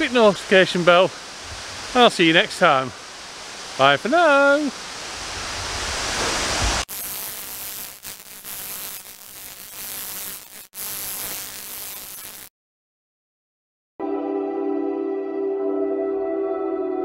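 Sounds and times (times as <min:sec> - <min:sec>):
running water rushing: 0:00.0 - 0:06.9
crackling static hiss: 0:00.0 - 0:12.5.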